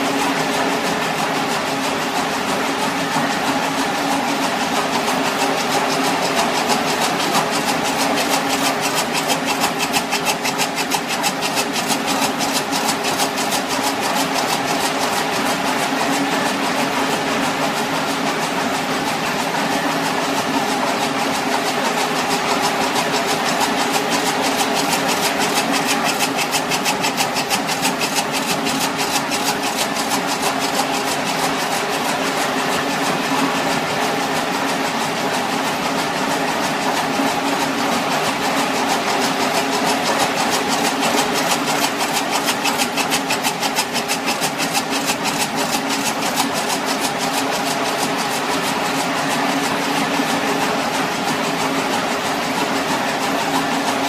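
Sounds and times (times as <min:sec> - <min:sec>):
fast even clicking: 0:05.6 - 0:15.1, 0:22.9 - 0:32.0, 0:39.2 - 0:49.0.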